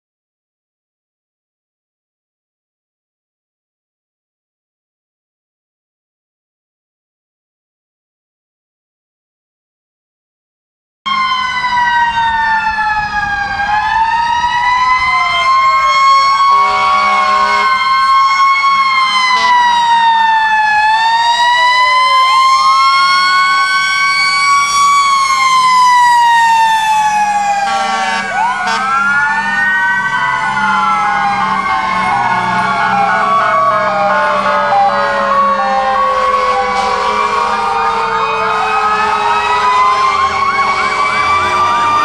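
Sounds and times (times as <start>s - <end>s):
fire truck sirens wailing: 11.1s - 42.0s
short horn blast: 16.5s - 17.7s, 27.7s - 28.8s, 36.7s - 37.5s.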